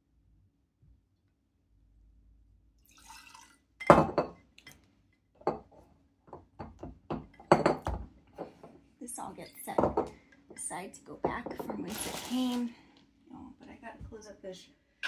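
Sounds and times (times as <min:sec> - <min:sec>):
liquid pouring into glass: 0:02.8 - 0:04.3.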